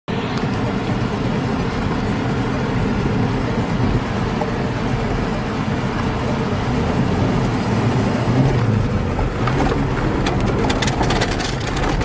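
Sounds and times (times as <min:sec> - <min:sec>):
car engine running under load: 0:00.1 - 0:12.0
tyres scrabbling on loose dirt: 0:08.3 - 0:12.0.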